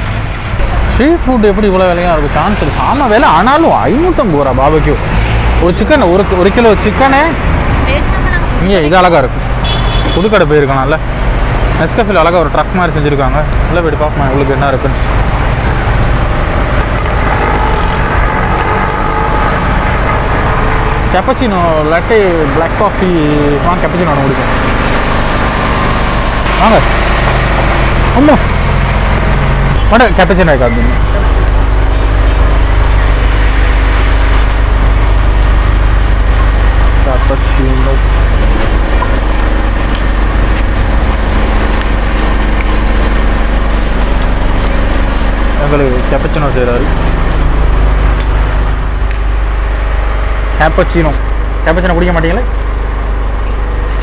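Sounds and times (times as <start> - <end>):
engine droning steadily: 0.0 - 54.0
road traffic rumble: 0.0 - 54.0.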